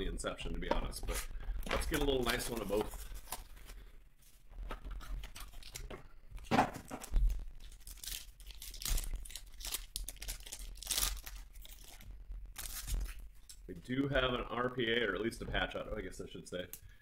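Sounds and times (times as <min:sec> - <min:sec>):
foil wrapper tearing and crinkling: 0:01.8 - 0:03.8, 0:05.0 - 0:05.9, 0:06.9 - 0:13.6.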